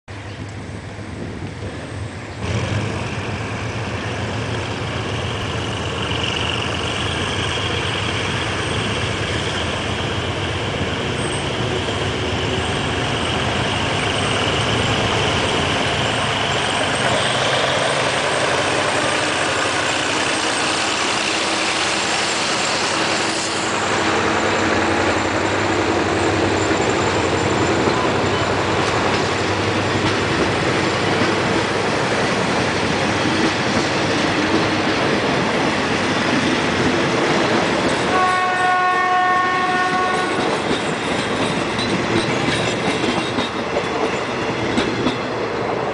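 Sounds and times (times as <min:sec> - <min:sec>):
train coaches rolling past: 0:00.1 - 0:45.9
locomotive diesel engine running: 0:02.1 - 0:37.8.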